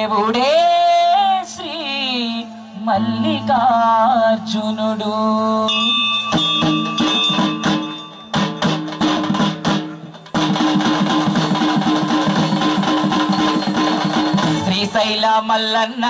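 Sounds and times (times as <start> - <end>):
singing with vibrato over drone: 0.0 - 6.6
instrumental folk music with percussion: 5.7 - 16.0.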